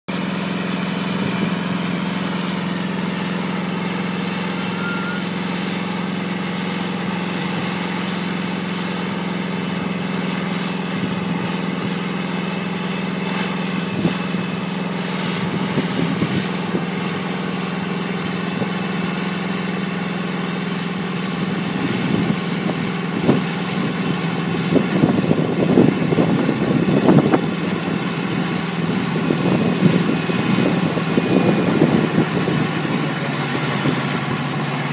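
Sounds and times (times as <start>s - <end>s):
helicopter engine humming: 0.1s - 34.9s
gusty buffeting: 13.8s - 14.4s, 15.3s - 17.0s, 28.3s - 34.9s.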